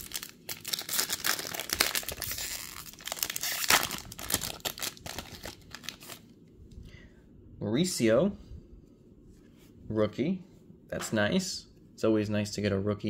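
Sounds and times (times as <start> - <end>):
foil wrapper tearing and crinkling: 0.0 - 6.2.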